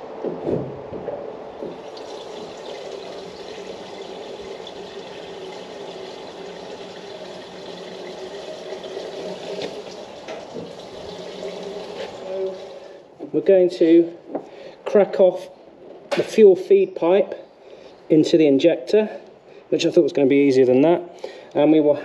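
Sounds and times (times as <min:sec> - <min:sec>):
diesel pouring into fuel tank: 0:01.6 - 0:13.1.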